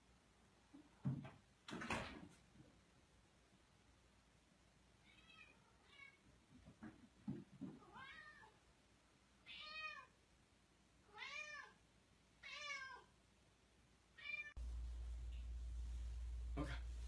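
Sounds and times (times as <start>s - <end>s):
cat meowing: 5.0s - 6.2s, 7.8s - 8.6s, 9.4s - 10.2s, 11.1s - 11.8s, 12.4s - 13.1s, 14.2s - 14.6s.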